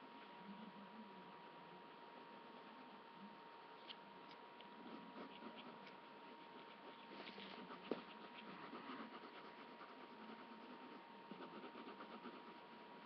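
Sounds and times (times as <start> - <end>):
drawing tool scratching paper: 4.8 - 13.0.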